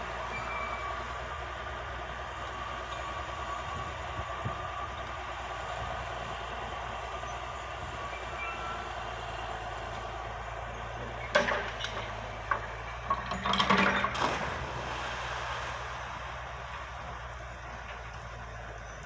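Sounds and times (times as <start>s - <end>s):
excavator engine running: 0.0s - 19.0s
metal chains clanking and rattling: 11.3s - 14.6s.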